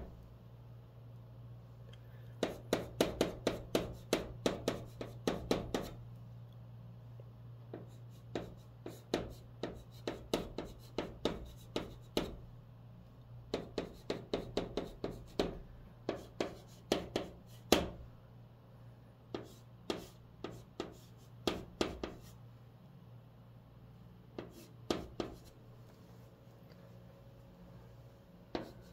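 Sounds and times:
chalk tapping and scratching: 2.4s - 6.0s, 7.7s - 12.4s, 13.5s - 18.0s, 19.3s - 22.4s, 24.4s - 25.6s, 28.5s - 28.9s.

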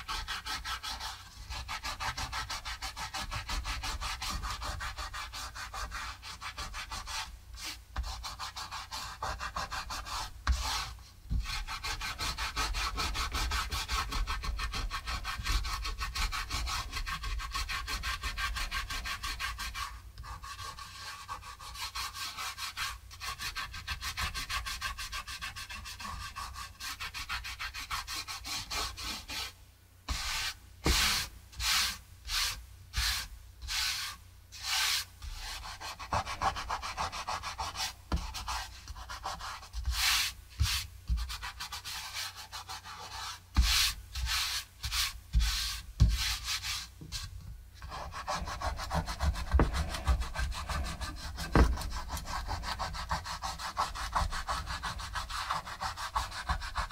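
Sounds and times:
fingertips rubbing paper: 47.8s - 56.9s.

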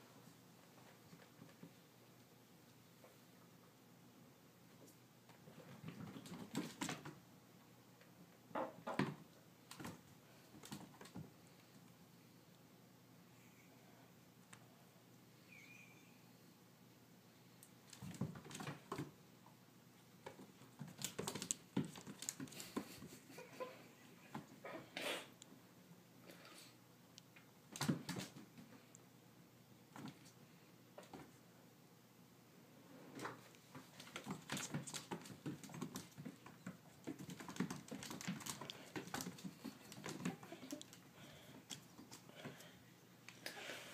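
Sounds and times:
kitten paws scrabbling on wood: 20.2s - 23.3s, 33.7s - 41.0s.

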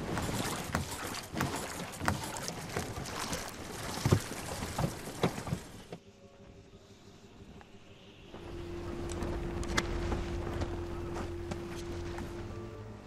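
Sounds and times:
sea noise: 0.0s - 13.0s
wind: 0.0s - 13.0s
faint steady tone: 6.0s - 13.0s.

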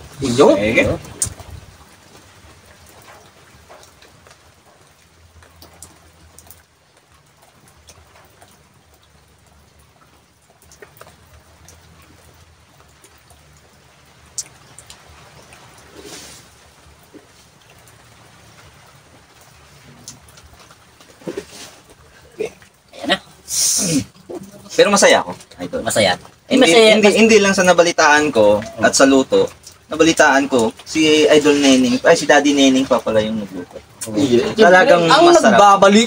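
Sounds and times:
small ticks and clicks: 2.9s - 15.9s
faint hiss: 14.2s - 36.0s.

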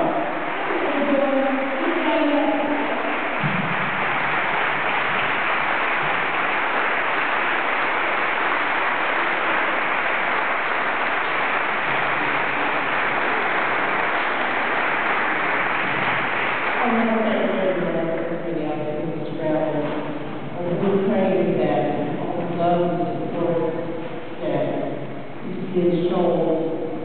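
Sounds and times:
audience applauding: 0.0s - 17.6s.

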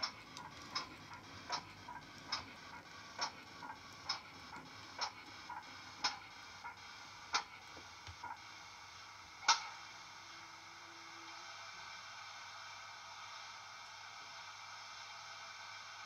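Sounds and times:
steam locomotive chuffs: 0.0s - 8.4s.

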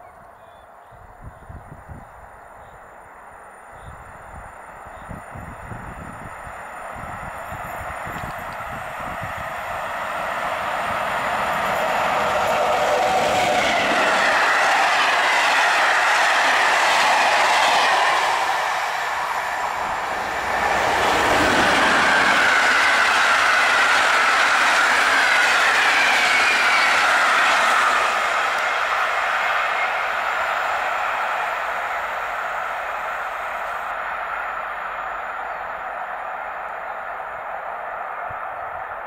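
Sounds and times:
train wheels clattering on rail: 7.0s - 31.3s.

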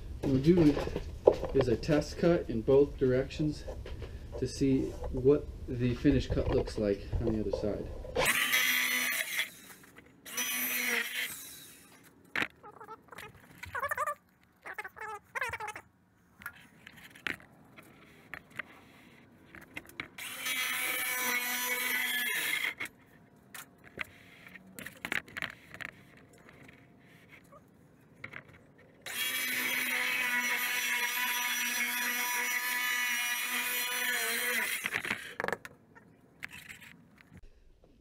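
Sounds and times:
circular saw cutting panel: 5.8s - 12.1s, 20.2s - 22.9s, 29.0s - 35.6s
clicks and handling knocks: 34.8s - 35.8s.

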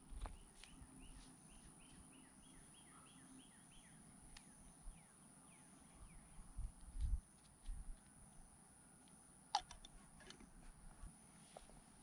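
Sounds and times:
bird singing faintly: 0.0s - 7.9s.

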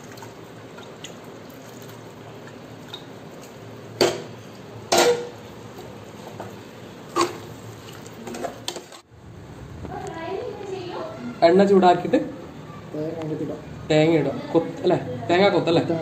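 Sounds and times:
metal cookware clanking: 4.0s - 5.4s.

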